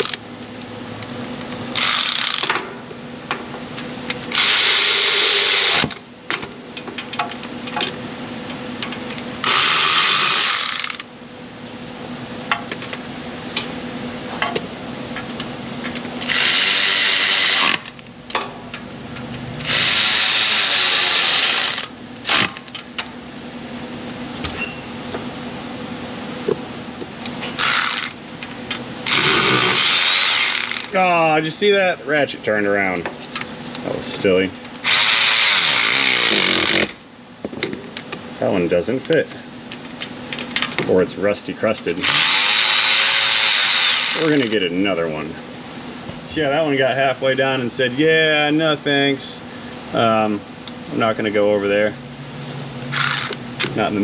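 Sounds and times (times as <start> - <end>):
power ratchet running: 1.7 - 2.6, 4.3 - 6.0, 9.4 - 11.1, 16.2 - 18.0, 19.6 - 22.8, 27.6 - 28.2, 29.0 - 31.0, 34.8 - 37.0, 42.0 - 44.6, 52.9 - 53.6
tool and hardware clicks and clanks: 52.9 - 53.8.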